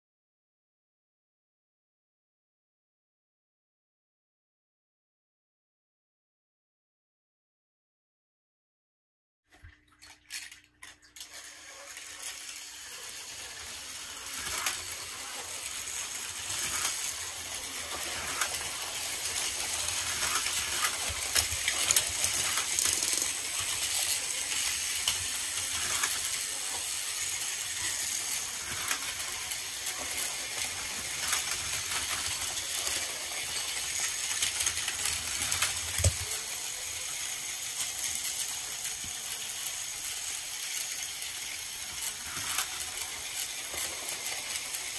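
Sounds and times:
toy trains rattling on plastic track: 0:10.2 - 0:44.9
toy cars clicking and knocking: 0:10.3 - 0:44.9.

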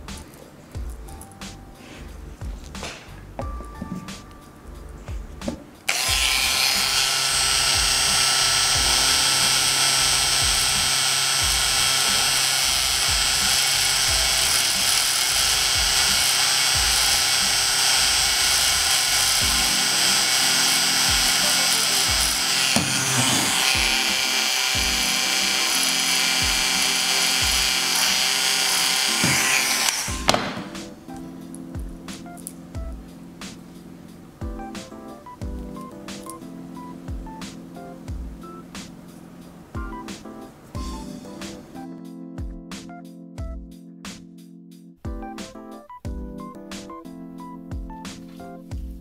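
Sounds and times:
small power tool whining: 0:05.9 - 0:30.8.

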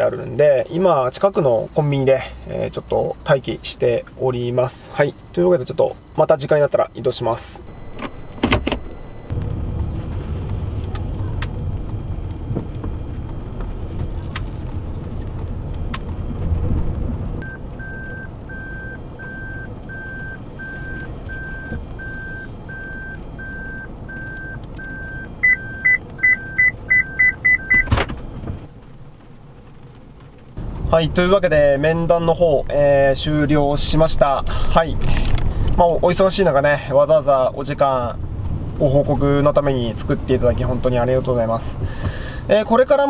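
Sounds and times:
fast parking sensor beeps: 0:00.0 - 0:10.0, 0:11.4 - 0:14.3, 0:15.6 - 0:16.6, 0:17.4 - 0:28.7
reverse warning beeping: 0:00.0 - 0:28.8, 0:30.5 - 0:34.8
car engine and road rumble: 0:00.0 - 0:43.0.

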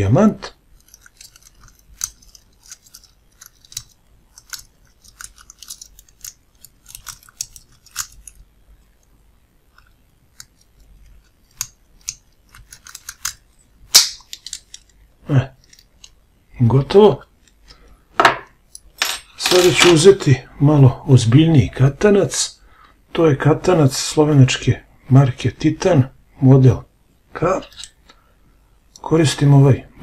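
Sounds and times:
lock pick clicking and scraping: 0:00.8 - 0:08.4.

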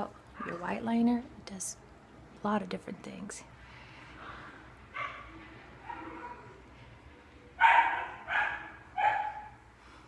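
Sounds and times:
small dog barking: 0:07.6 - 0:09.6.

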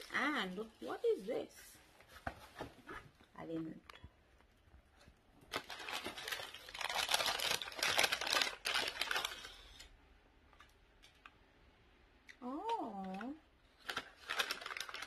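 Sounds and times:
paper crinkling and rustling: 0:05.0 - 0:09.9, 0:13.7 - 0:15.0.

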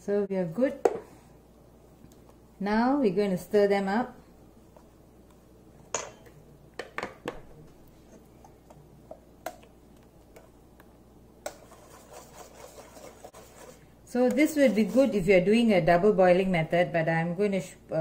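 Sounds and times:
whisk clicking against steel bowl: 0:11.4 - 0:15.1
whisk scraping and sloshing: 0:11.4 - 0:15.6.

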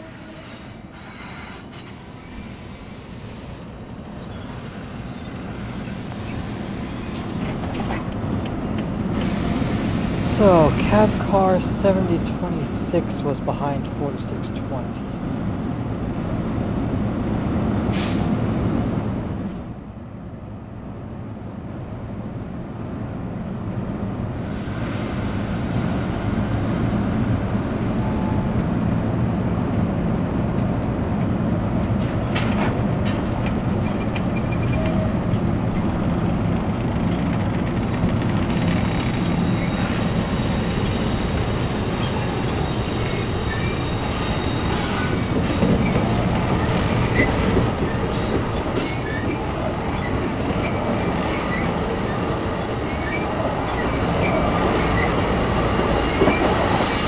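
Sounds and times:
train coaches rumbling past: 0:00.0 - 0:20.0, 0:22.9 - 0:57.0
high wheel squeals: 0:04.2 - 0:07.2, 0:38.9 - 0:55.2.

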